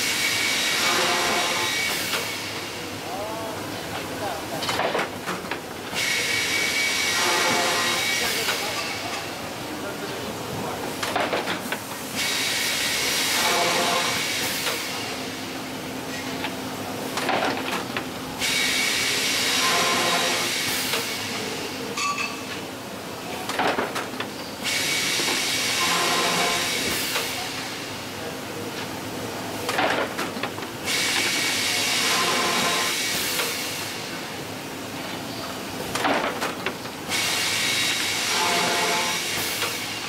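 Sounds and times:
boring machine hissing whine: 0.0 - 3.6, 5.9 - 9.1, 11.9 - 17.1, 18.1 - 21.9, 24.4 - 28.2, 30.8 - 35.4, 37.0 - 40.0.

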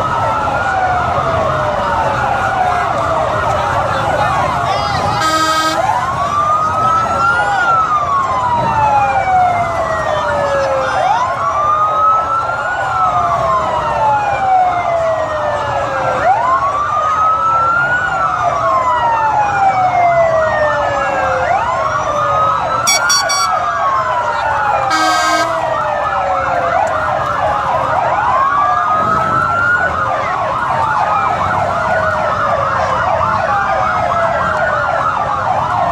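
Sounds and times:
police sirens wailing: 0.0 - 35.9
short siren blasts: 5.1 - 8.7, 22.1 - 26.0.

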